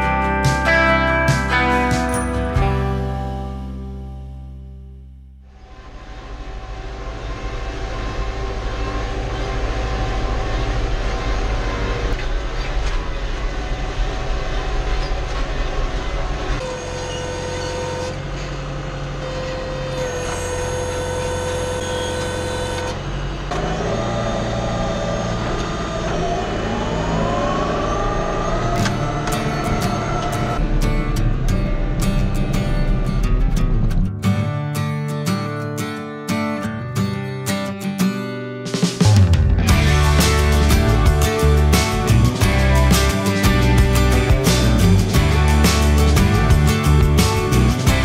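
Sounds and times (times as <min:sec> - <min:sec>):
tractor engine running: 0:20.3 - 0:34.1, 0:39.0 - 0:48.0.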